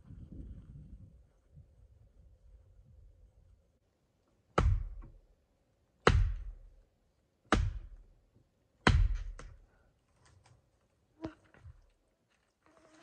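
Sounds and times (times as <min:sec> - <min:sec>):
heavy knocks on dead wood: 0:04.6 - 0:05.2, 0:06.0 - 0:06.7, 0:07.5 - 0:08.0, 0:08.8 - 0:09.6.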